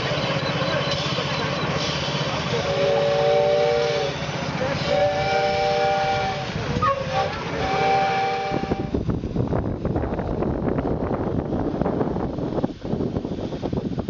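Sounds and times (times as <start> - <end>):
hiss of steam: 0.0 - 10.0, 12.3 - 14.0
steam whistle blasts: 0.7 - 9.0.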